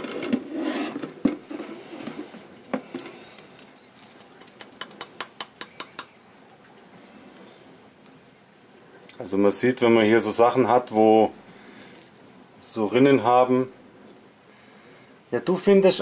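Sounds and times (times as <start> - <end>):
cork bark rustling and scraping: 0.0 - 5.1.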